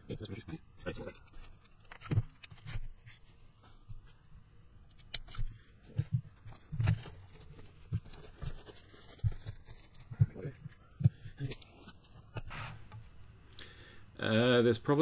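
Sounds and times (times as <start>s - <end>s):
plastic car chassis being handled: 4.9s - 13.0s.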